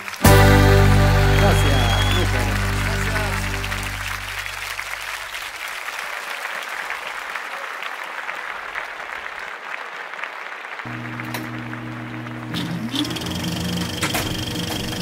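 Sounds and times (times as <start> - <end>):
steady low tones: 0.0 - 5.0
audience applauding: 0.0 - 12.9.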